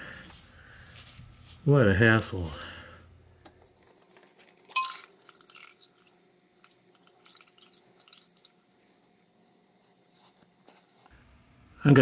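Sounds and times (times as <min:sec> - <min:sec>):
oil dripping and splattering: 0:04.6 - 0:08.9.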